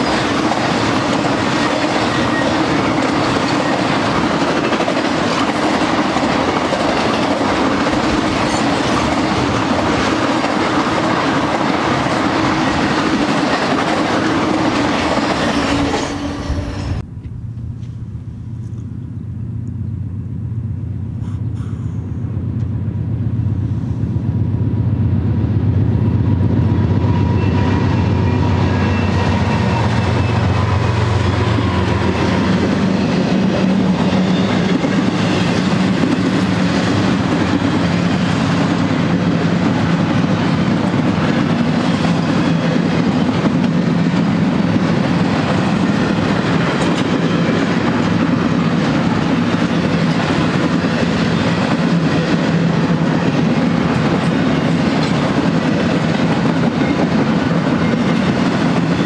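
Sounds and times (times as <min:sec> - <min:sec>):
train wheels rattling on rail: 0:00.0 - 0:18.9, 0:21.2 - 0:59.0
diesel locomotive drone: 0:00.0 - 0:59.0.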